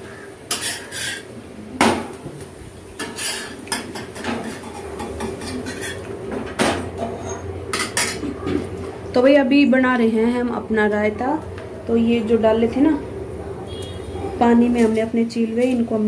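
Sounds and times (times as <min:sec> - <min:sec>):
metal spatula scraping griddle: 0:00.5 - 0:01.3, 0:03.0 - 0:03.6, 0:04.2 - 0:06.1.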